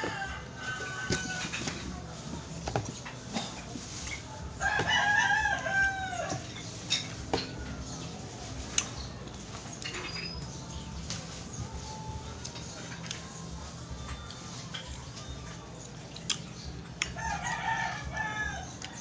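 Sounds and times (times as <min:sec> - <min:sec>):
rooster crowing: 0:00.0 - 0:01.6, 0:04.6 - 0:06.4, 0:17.2 - 0:18.9.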